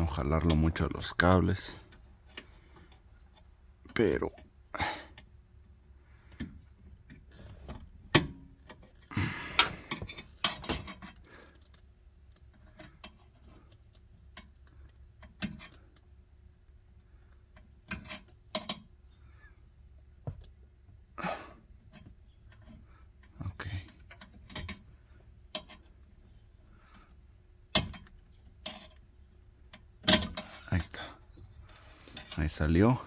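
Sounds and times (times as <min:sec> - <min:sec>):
rustling and scraping: 0:06.0 - 0:19.0, 0:21.8 - 0:33.0.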